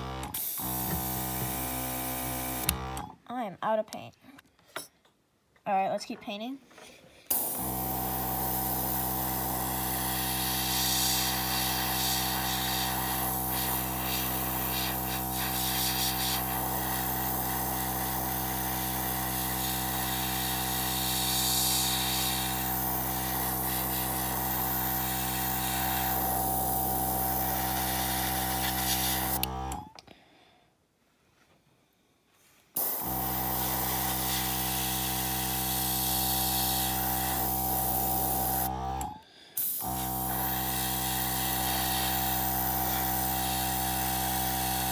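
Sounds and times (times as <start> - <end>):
compressor motor hum: 0.0 - 3.2, 7.3 - 30.0, 32.8 - 44.9
airbrush spraying hiss: 10.7 - 17.4.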